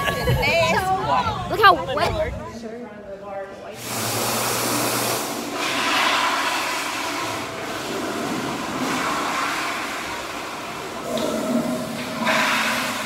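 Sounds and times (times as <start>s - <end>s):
hand dryer blowing air: 3.8s - 13.0s.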